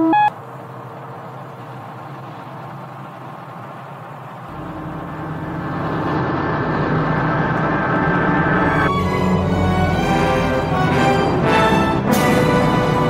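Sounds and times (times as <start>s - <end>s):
spacecraft engine rumbling hum: 0.0s - 13.0s
low ominous music: 4.5s - 13.0s.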